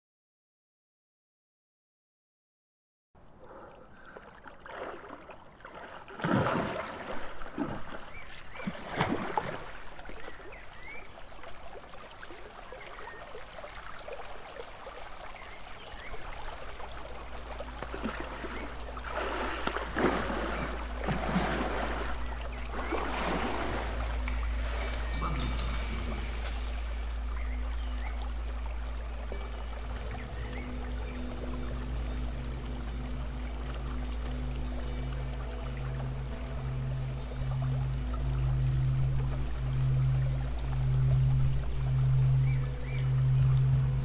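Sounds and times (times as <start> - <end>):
low steady hum: 3.2 - 44.0
running water splashing: 3.9 - 44.0.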